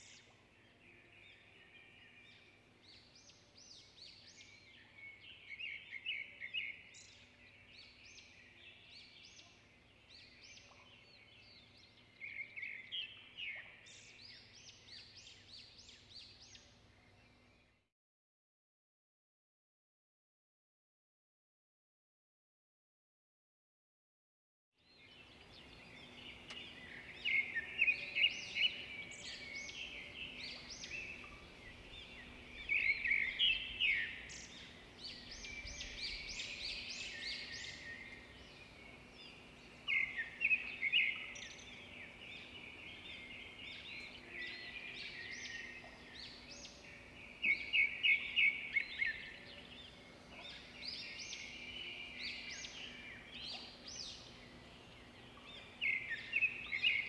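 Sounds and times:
songbirds chirping and singing: 0:00.0 - 0:17.8, 0:24.8 - 0:57.0.

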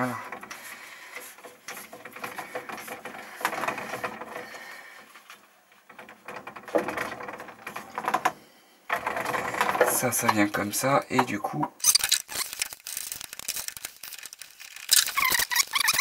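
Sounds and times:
hands handling hoses and fittings: 0:00.0 - 0:10.6.

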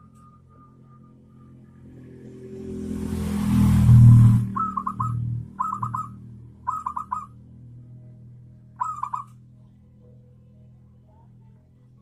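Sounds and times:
dove cooing: 0:04.5 - 0:07.4, 0:08.8 - 0:09.3.

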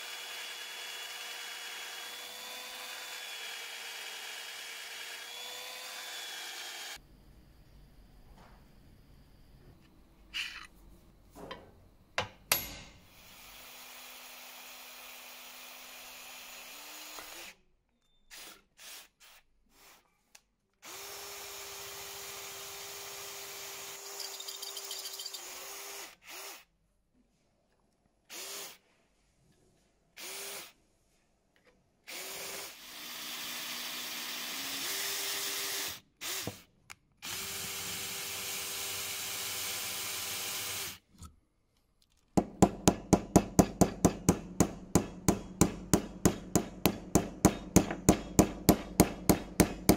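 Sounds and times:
cordless drill boring through metal: 0:00.0 - 0:07.0, 0:13.1 - 0:17.6, 0:20.8 - 0:26.6, 0:32.1 - 0:36.6, 0:37.2 - 0:41.0
hammer tapping rapidly: 0:42.4 - 0:49.9.

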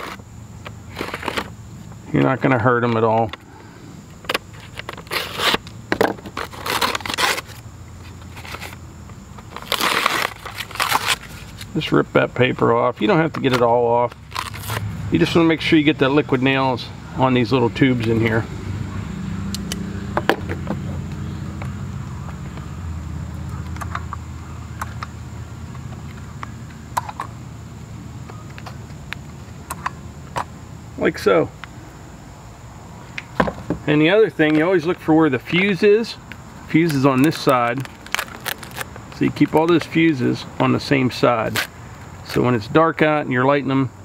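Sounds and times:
steady low hum: 0:00.0 - 0:44.0
knife scraping and ripping paper: 0:04.6 - 0:05.7, 0:06.3 - 0:07.6, 0:09.5 - 0:11.7, 0:14.3 - 0:14.9, 0:37.4 - 0:38.9
handling cardboard box knocks: 0:33.4 - 0:33.8.

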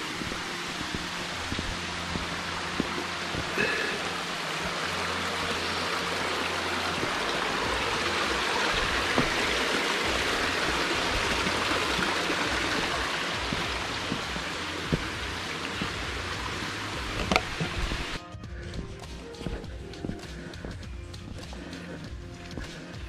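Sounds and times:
stream water rushing: 0:00.0 - 0:18.2.

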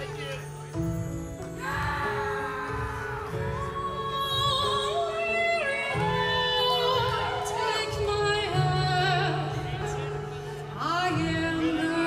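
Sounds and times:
woman singing with vibrato: 0:01.6 - 0:10.1.

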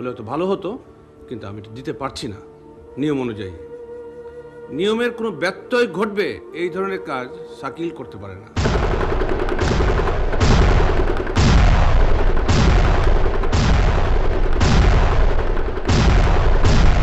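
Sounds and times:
heavy gunfire blasts: 0:08.6 - 0:17.0.

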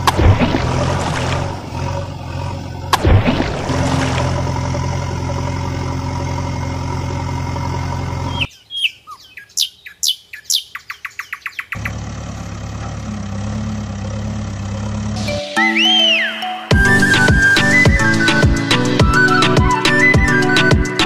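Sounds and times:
engine drone: 0:00.0 - 0:08.5, 0:11.7 - 0:15.6
bird whistling and trilling: 0:08.3 - 0:11.8, 0:15.6 - 0:18.0.

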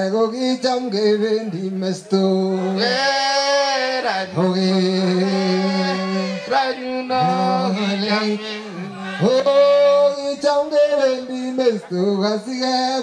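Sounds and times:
person chanting long held notes: 0:02.4 - 0:10.2.

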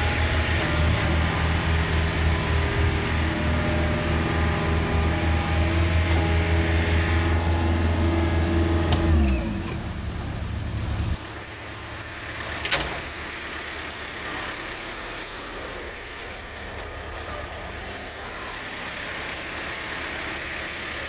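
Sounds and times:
diesel engine running: 0:00.0 - 0:21.0.

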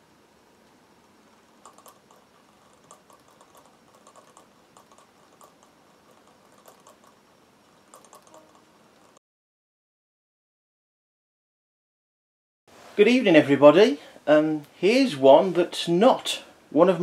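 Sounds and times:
model engine parts clicking: 0:01.6 - 0:07.2, 0:07.9 - 0:09.2.

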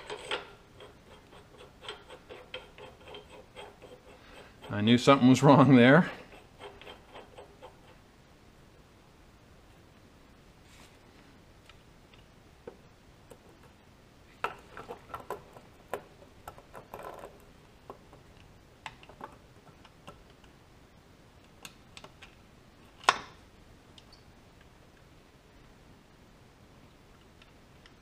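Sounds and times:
metal parts clicking and knocking: 0:00.0 - 0:04.8.

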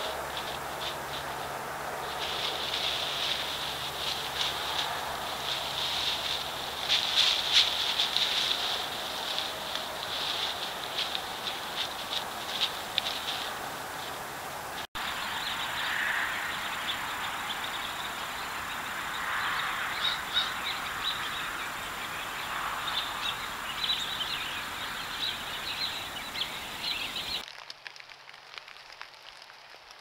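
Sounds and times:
steady hiss: 0:00.0 - 0:16.1
faint bird calls: 0:15.0 - 0:27.4.

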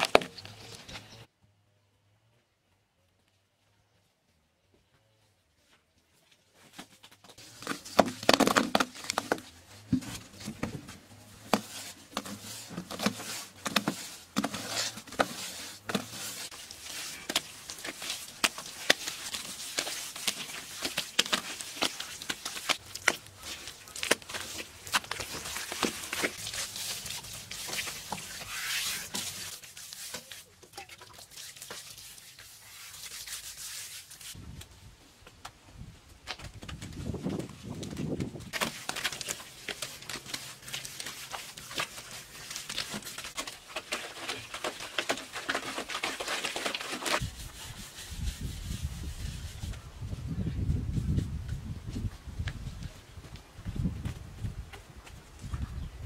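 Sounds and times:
hands smearing mud: 0:11.4 - 0:34.4, 0:37.3 - 0:49.8
hands slapping wet mud: 0:15.2 - 0:33.4, 0:38.5 - 0:47.2.

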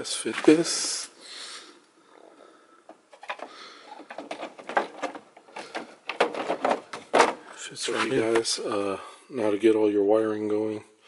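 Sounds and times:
hard plastic clicking and knocking: 0:02.9 - 0:07.4.

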